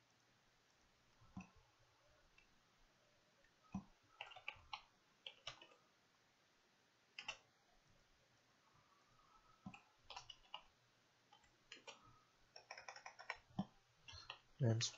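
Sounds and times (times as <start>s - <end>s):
keyboard typing clicks: 3.7s - 5.8s, 7.2s - 7.4s, 9.7s - 10.7s, 11.4s - 14.4s.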